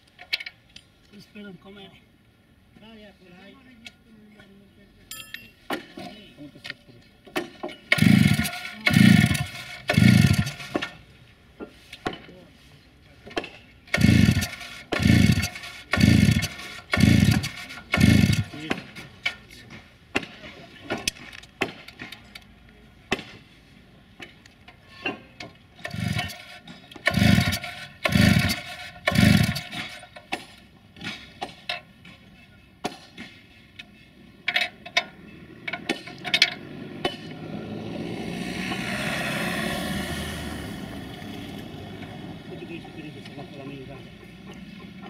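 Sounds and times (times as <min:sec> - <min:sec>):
recoil starter pulls: 0:07.8 - 0:11.0, 0:13.9 - 0:19.4, 0:25.8 - 0:30.5
saw engine cranking: 0:07.8 - 0:11.0, 0:13.8 - 0:19.2, 0:25.8 - 0:30.5.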